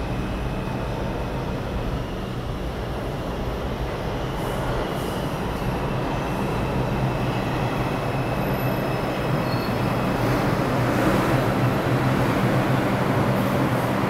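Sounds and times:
train wheels rumbling on rails: 0.0s - 14.0s
high wheel squeals: 8.0s - 10.2s.

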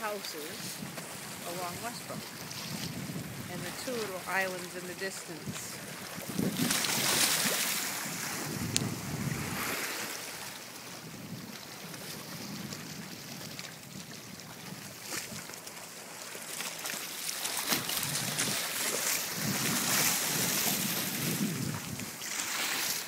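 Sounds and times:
waves splashing against rocks: 0.0s - 23.0s
wind buffeting microphone: 0.6s - 4.3s, 5.4s - 15.5s, 17.8s - 22.2s.

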